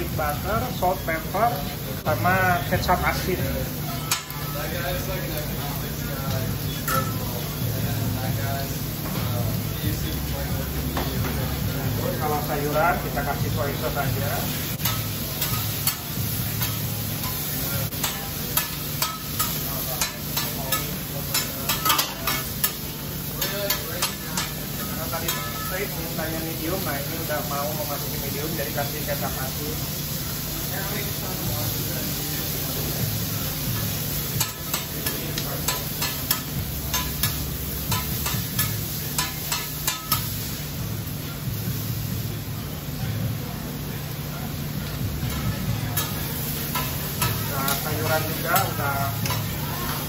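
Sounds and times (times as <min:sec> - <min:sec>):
food sizzling on a griddle: 0:00.0 - 0:50.0
spatula clacking on griddle: 0:04.0 - 0:04.5, 0:14.8 - 0:25.8, 0:33.8 - 0:40.5, 0:46.0 - 0:50.0.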